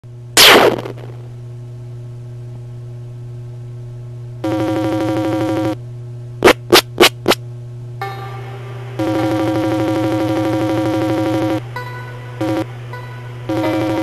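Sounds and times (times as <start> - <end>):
low electronic drone: 4.4 - 5.8, 8.0 - 14.0.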